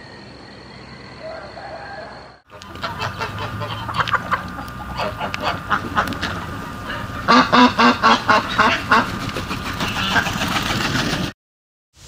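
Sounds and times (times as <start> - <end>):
ducks quacking: 2.5 - 11.3.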